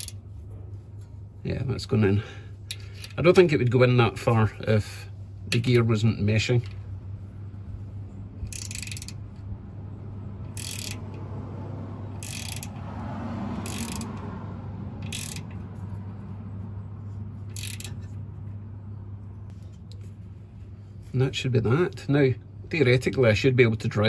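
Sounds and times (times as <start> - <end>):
ratchet wrench clicking: 0.0 - 0.2, 2.7 - 3.2, 8.4 - 9.5, 10.4 - 11.3, 12.1 - 12.8, 13.5 - 14.3, 15.0 - 16.0, 17.4 - 18.3
low hum: 0.0 - 21.2.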